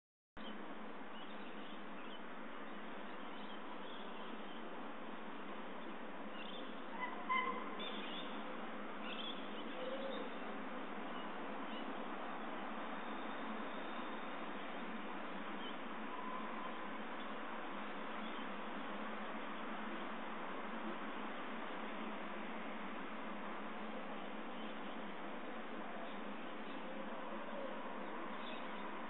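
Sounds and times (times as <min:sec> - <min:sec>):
bird calls: 0:06.4 - 0:08.4.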